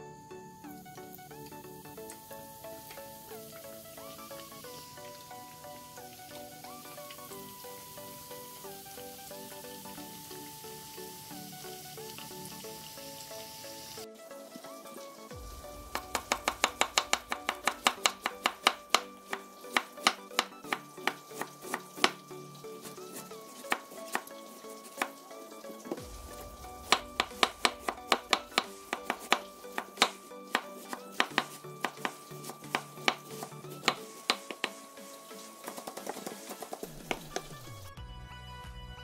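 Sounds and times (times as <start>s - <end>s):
soft background music: 0.0s - 39.0s
knife chopping on wooden board: 16.0s - 22.2s, 26.8s - 34.8s, 35.7s - 37.5s.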